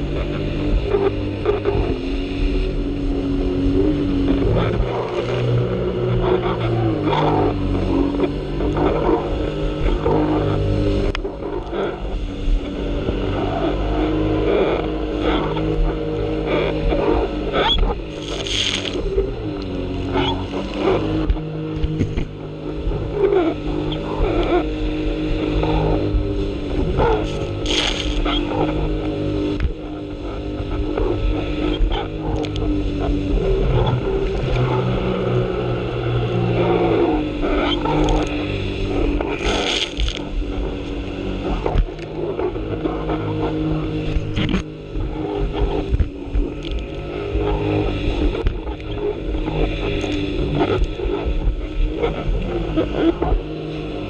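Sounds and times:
jet ski engine droning: 0.0s - 54.0s
rushing water and spray: 0.0s - 54.0s
water splashing: 18.0s - 22.3s, 26.7s - 28.4s, 37.9s - 41.0s.

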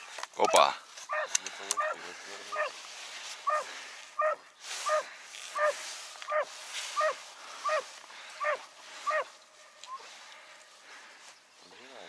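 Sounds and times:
dog yelping: 0.4s - 2.0s, 4.2s - 7.8s, 8.4s - 9.3s.

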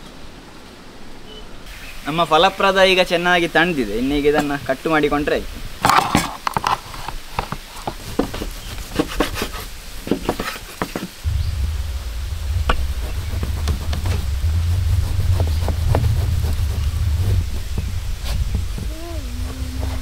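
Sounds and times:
low rumble: 11.2s - 20.0s.

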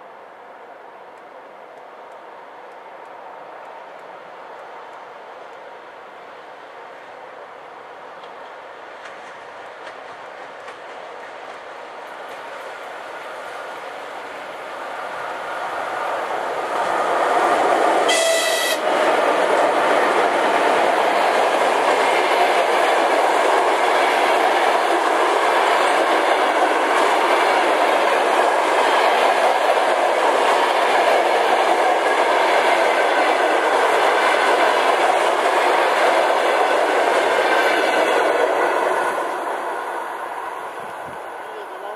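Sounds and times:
train coaches rumbling past: 0.0s - 41.9s
wheels clacking over rail joints: 9.0s - 14.0s
locomotive whistle blast: 18.1s - 18.8s.

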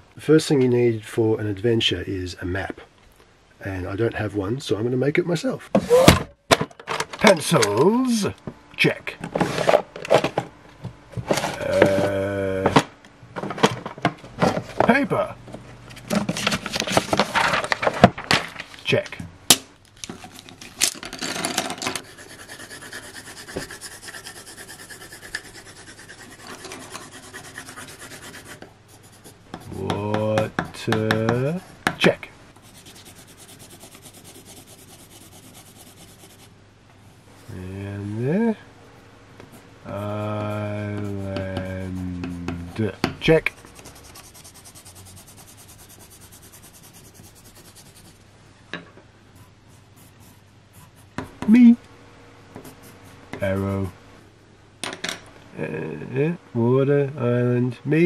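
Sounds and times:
pencils clattering: 20.0s - 22.1s
pencil scribbling on paper: 22.0s - 29.9s, 32.6s - 36.5s, 39.9s - 48.2s, 49.4s - 51.3s, 52.6s - 53.2s.

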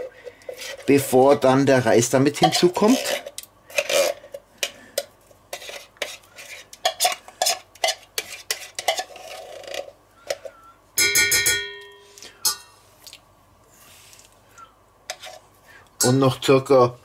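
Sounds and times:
metal spoon scraping tin can: 0.0s - 1.2s, 2.3s - 4.4s, 5.5s - 9.9s, 15.1s - 15.4s.

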